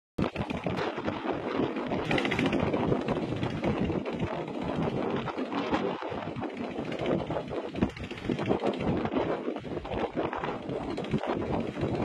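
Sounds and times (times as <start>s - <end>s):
wind rushing over microphone: 0.2s - 12.0s.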